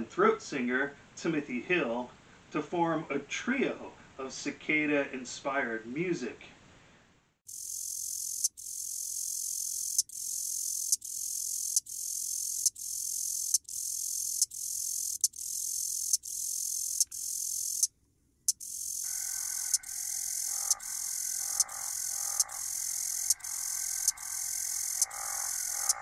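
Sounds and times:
cicadas buzzing: 0:07.5 - 0:17.9, 0:18.5 - 0:26.0.

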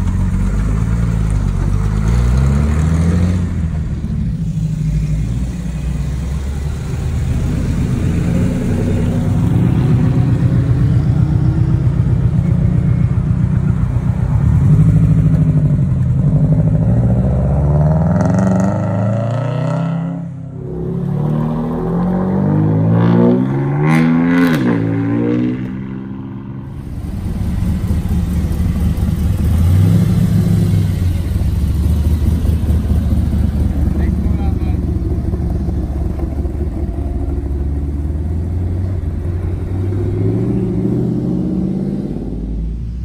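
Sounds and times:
sports car engines running: 0:00.0 - 0:19.3, 0:25.0 - 0:43.0
car accelerating away: 0:00.0 - 0:43.0.

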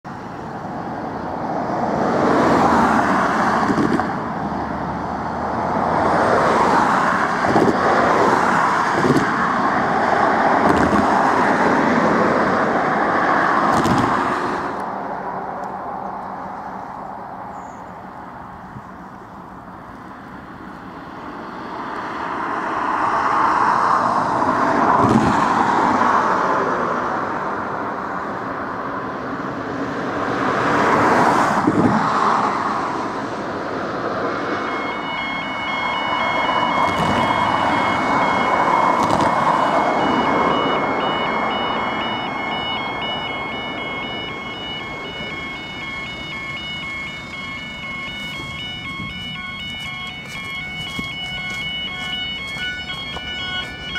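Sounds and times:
traffic passing on road: 0:00.0 - 0:53.9
level crossing alarm tones: 0:34.3 - 0:53.9.

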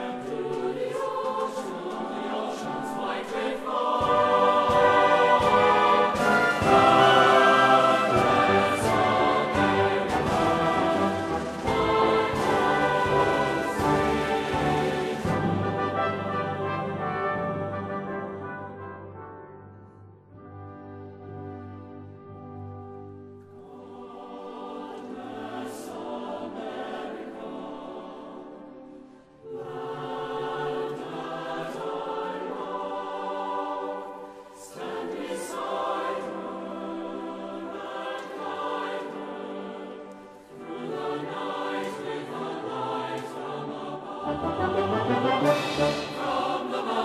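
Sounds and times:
orchestral accompaniment: 0:00.0 - 0:23.2, 0:37.7 - 0:47.0
choir singing: 0:00.0 - 0:47.0.

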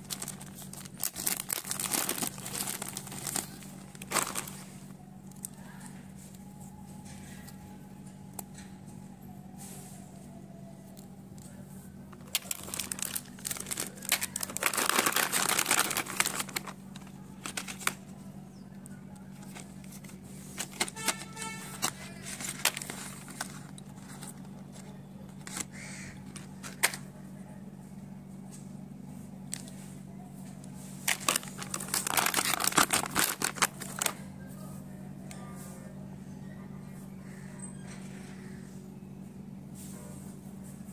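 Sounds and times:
plastic packaging crinkling: 0:00.0 - 0:05.9, 0:12.0 - 0:27.1, 0:31.0 - 0:34.2
low steady hum: 0:00.0 - 0:40.9.

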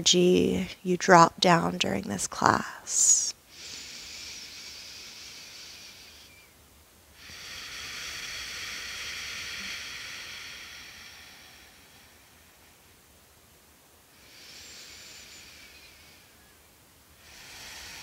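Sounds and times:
woman breathing into microphone: 0:07.2 - 0:13.0, 0:17.2 - 0:18.0.

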